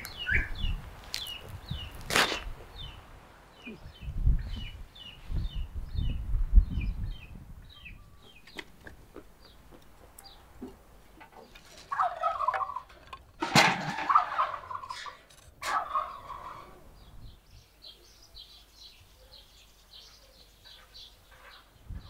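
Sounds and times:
small birds chirping: 0.0 - 13.0, 15.9 - 22.0
farmyard fowl calling: 11.2 - 16.9.

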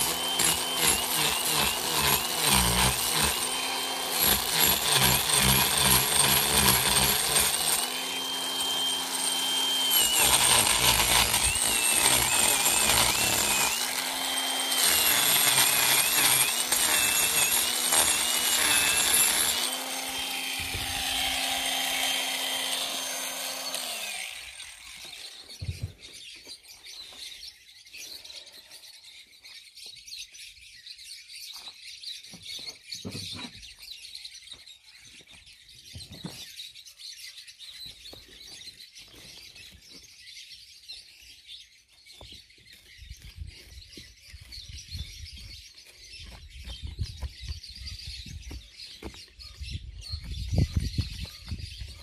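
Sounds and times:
power carving tool winding down: 0.0 - 25.5
hand tool scraping wood: 0.0 - 26.0
birds chirping: 0.0 - 52.0.

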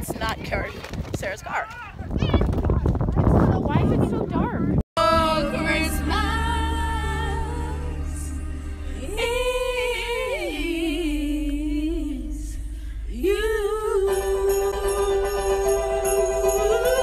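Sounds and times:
car rumble: 2.2 - 17.0
girls singing along: 5.0 - 15.2
christmas music on car stereo: 5.0 - 17.0.

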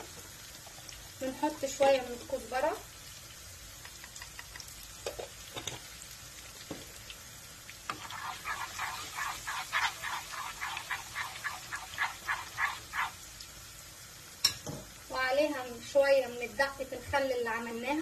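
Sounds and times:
faint oil sizzle: 0.0 - 18.0
spoon scraping frying pan: 3.9 - 5.9, 7.9 - 13.2.

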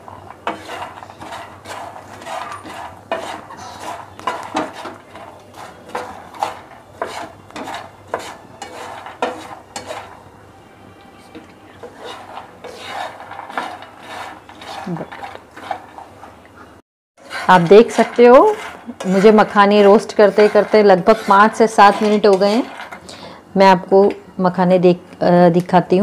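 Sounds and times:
spatula scraping frying pan: 0.0 - 10.3, 11.3 - 23.3.

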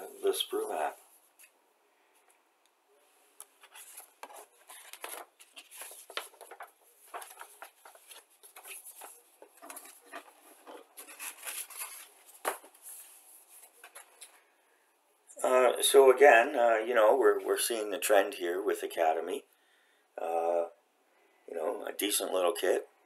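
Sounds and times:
paper rustling and crinkling: 3.5 - 14.4.

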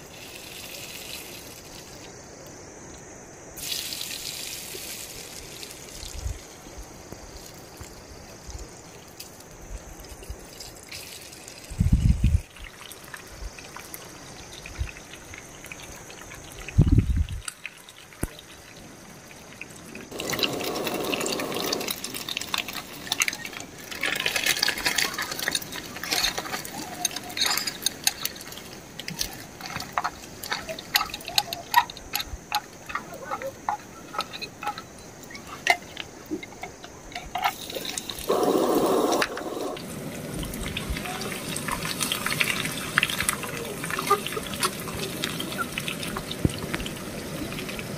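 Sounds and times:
gas burner rushing: 37.7 - 40.2.

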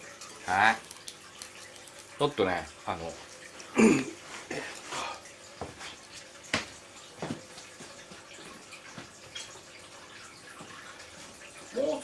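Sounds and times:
hot oil popping and crackling: 0.0 - 3.0, 5.5 - 11.8.

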